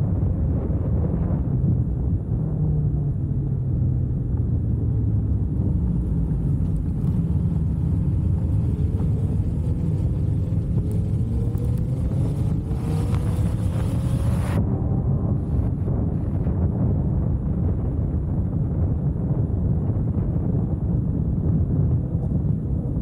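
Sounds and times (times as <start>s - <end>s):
wind on microphone: 0.0s - 23.0s
motorcycle engine running: 5.0s - 16.1s.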